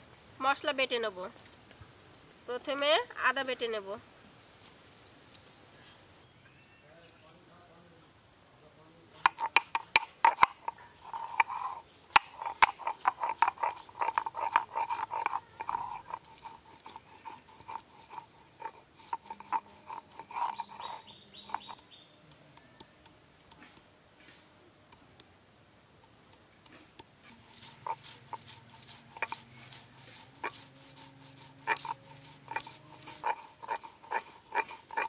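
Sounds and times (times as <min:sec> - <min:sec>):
stone scraping on grinding stone: 0:09.2 - 0:22.0, 0:26.6 - 0:35.0.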